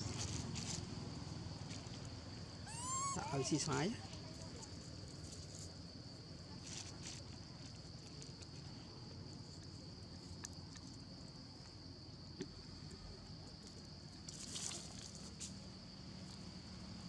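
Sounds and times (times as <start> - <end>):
high-pitched insect drone: 2.6 - 4.0.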